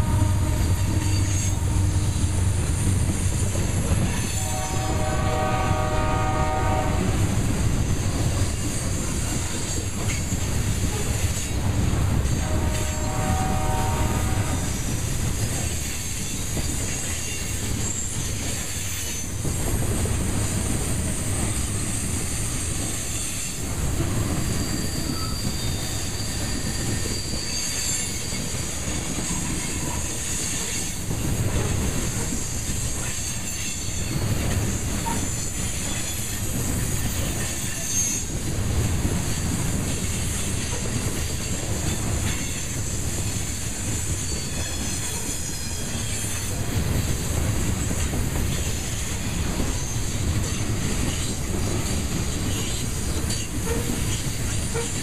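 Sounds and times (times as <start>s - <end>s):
high wheel squeal: 0.0s - 3.3s, 24.2s - 31.0s, 33.0s - 38.4s, 41.8s - 46.6s
steel wheels rumbling on rail: 0.0s - 55.0s.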